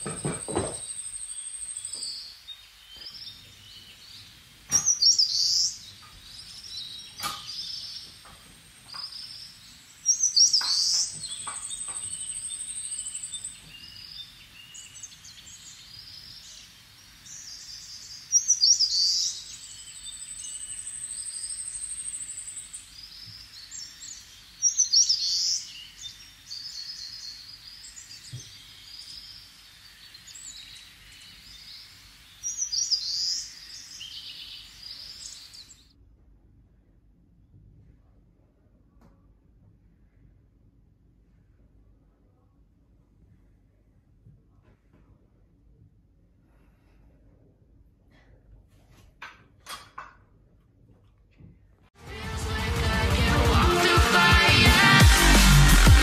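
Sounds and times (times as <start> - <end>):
birds chirping and calling: 3.0 - 35.8.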